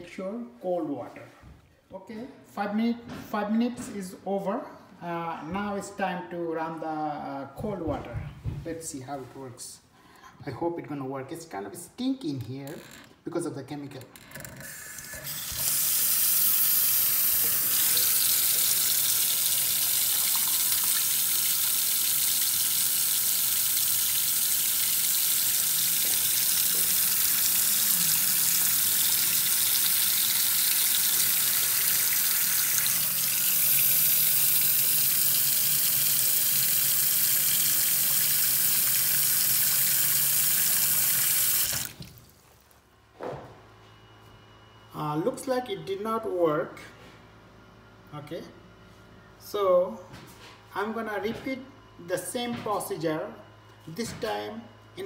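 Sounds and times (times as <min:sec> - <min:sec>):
faucet water splashing into sink: 0:15.2 - 0:42.3.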